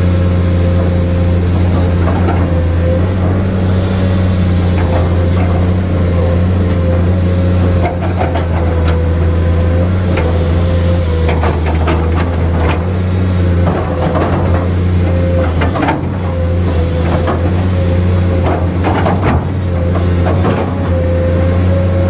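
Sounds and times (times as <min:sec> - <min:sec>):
excavator diesel engine: 0:00.0 - 0:22.0
steady hydraulic whine: 0:00.0 - 0:22.0.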